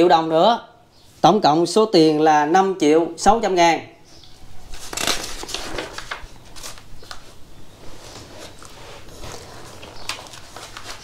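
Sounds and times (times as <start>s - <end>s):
banknotes crackling and rustling: 4.2s - 11.0s.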